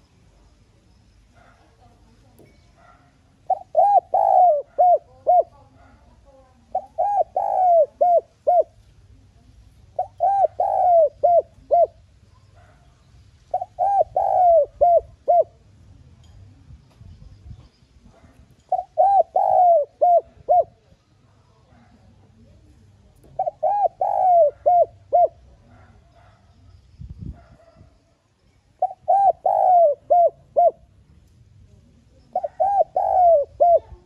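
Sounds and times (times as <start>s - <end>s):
dove cooing: 2.8s - 8.9s, 9.8s - 12.9s, 13.5s - 15.7s, 18.1s - 20.9s, 23.2s - 26.4s, 28.7s - 31.0s, 32.1s - 34.0s.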